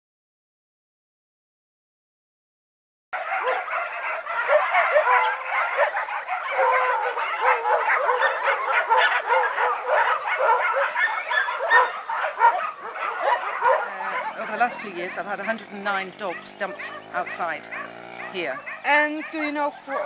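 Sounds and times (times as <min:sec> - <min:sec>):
dogs barking and yelping: 0:03.2 - 0:20.0.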